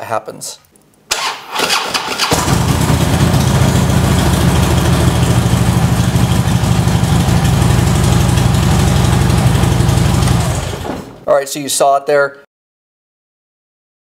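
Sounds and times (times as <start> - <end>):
motorcycle engine cranking: 1.1 - 10.8
motorcycle engine idling: 2.2 - 10.8.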